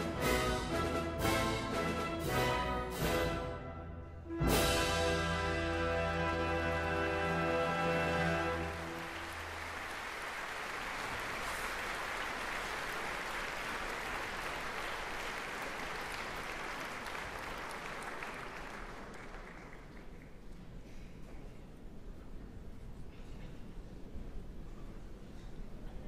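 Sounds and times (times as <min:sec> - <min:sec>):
orchestra held chord: 0:00.0 - 0:09.4
audience applauding: 0:06.2 - 0:20.5.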